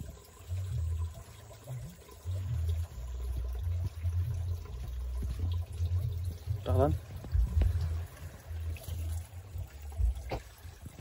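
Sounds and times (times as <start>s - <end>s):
stream water sloshing: 0.0s - 11.0s
low rumble: 2.4s - 11.0s.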